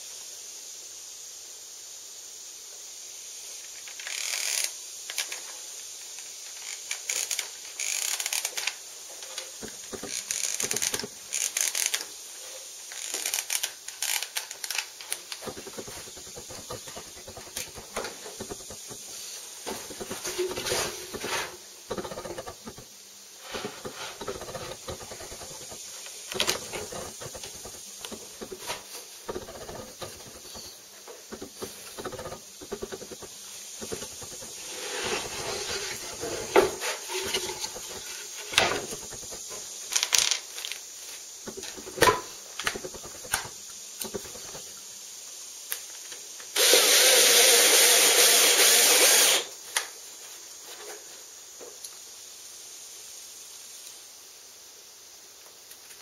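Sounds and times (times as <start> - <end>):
wood and tools clattering: 6.2 - 12.1, 13.0 - 40.8, 41.5 - 44.7
cordless drill drilling into wood: 46.6 - 49.5.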